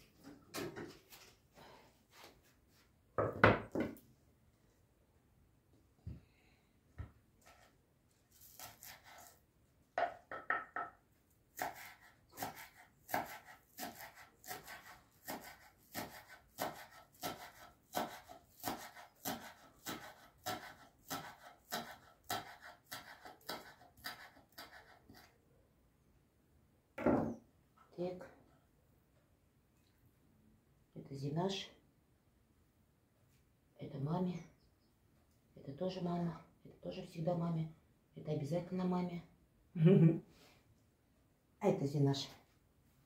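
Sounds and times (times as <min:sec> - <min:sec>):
knife chopping on wooden board: 0:11.6 - 0:24.9.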